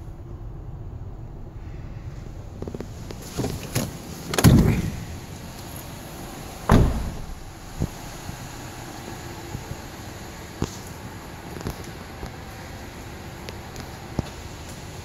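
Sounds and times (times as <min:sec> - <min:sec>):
heavy car door thuds: 0:06.6 - 0:08.0
light knocks on car door: 0:06.7 - 0:07.4.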